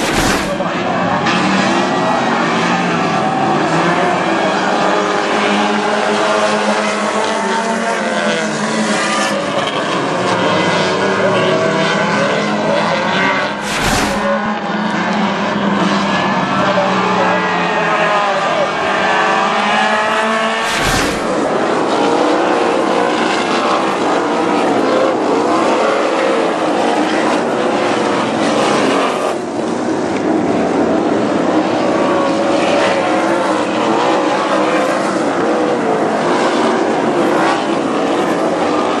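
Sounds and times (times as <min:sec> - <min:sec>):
brief thump: 0:00.0 - 0:00.6, 0:13.6 - 0:14.3, 0:20.6 - 0:21.5
racing car engines: 0:00.0 - 0:39.0.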